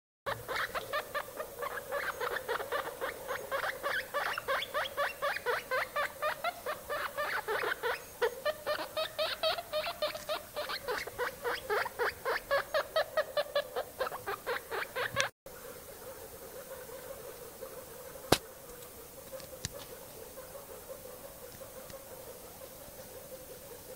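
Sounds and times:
guinea pig squeaking: 0.3s - 15.3s.

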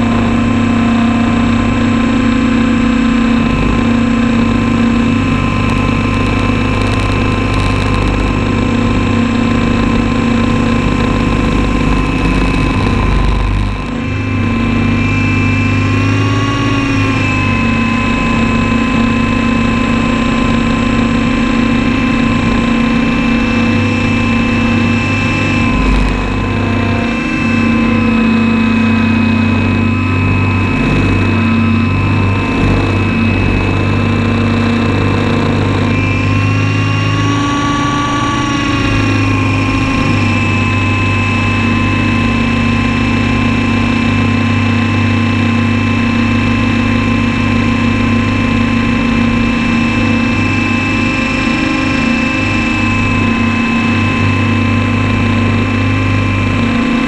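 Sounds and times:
model helicopter motor running: 0.0s - 57.0s.

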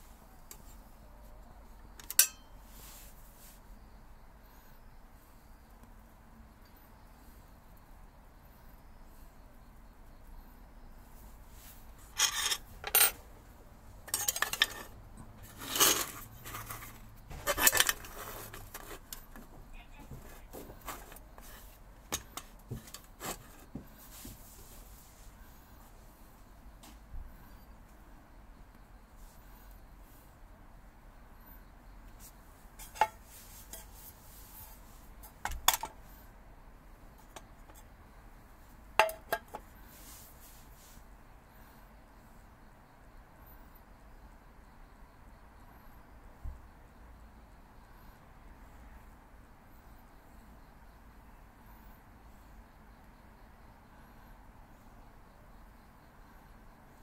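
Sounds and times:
low steady hiss: 0.0s - 57.0s
metallic clinks of small parts: 2.0s - 2.5s
small metal pieces clinking: 12.2s - 13.2s.

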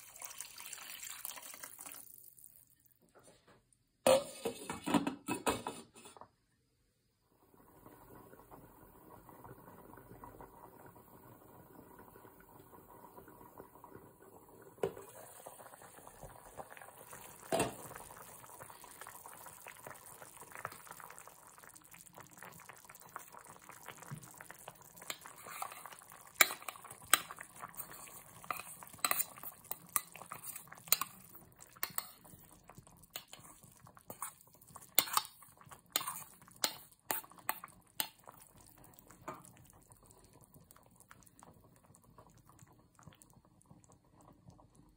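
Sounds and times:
soup simmering in pot: 0.0s - 3.0s, 3.8s - 44.9s
spatula scraping metal bowl: 28.4s - 29.4s.

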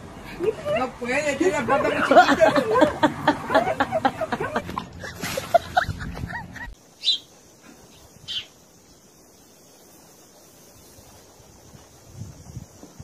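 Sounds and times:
voices: 0.2s - 5.8s
faint high hiss: 6.8s - 13.0s
high bird chirps: 7.0s - 7.3s, 7.9s - 8.6s.

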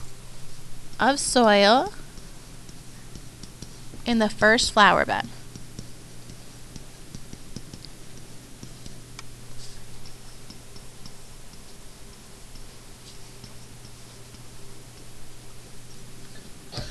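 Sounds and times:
steady low hum: 0.0s - 16.9s
stylus tapping on tablet: 1.4s - 9.4s, 10.0s - 11.8s.

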